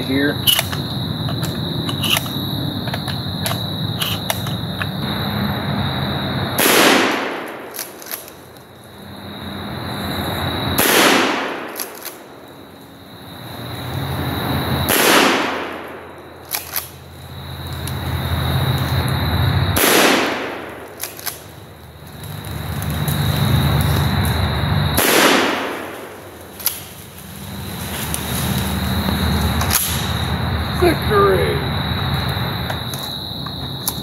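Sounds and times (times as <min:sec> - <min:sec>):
shotgun blasts: 0:06.6 - 0:08.0, 0:10.8 - 0:12.1, 0:14.9 - 0:16.0, 0:19.8 - 0:21.0, 0:25.0 - 0:26.2.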